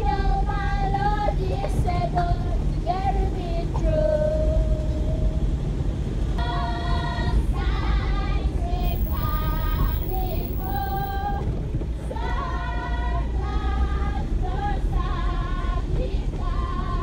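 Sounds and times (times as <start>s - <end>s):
people singing: 6.4s - 11.4s, 12.1s - 17.0s
car rumbling on dirt track: 8.8s - 12.0s.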